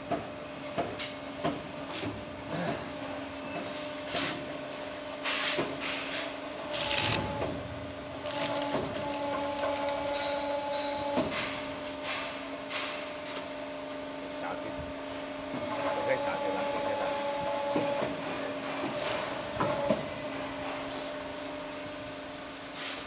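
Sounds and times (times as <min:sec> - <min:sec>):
machine humming: 0:06.5 - 0:11.2.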